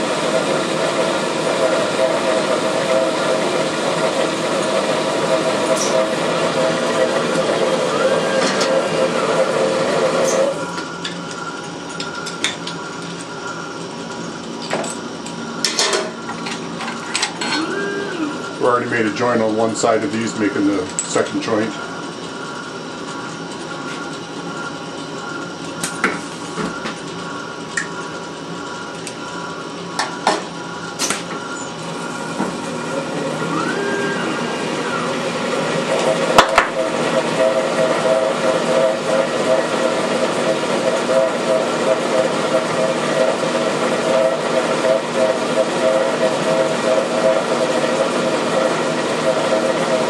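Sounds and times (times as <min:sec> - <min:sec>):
lathe running: 0:00.0 - 0:50.0
motor whine: 0:00.0 - 0:50.0
steady hum: 0:07.7 - 0:35.6.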